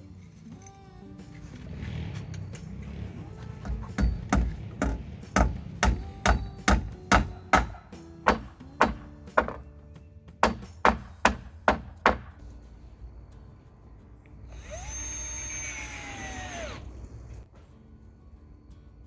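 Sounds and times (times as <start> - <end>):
hammer striking nail into wood: 3.6 - 9.6, 10.4 - 12.3
cordless drill whining: 14.5 - 17.0.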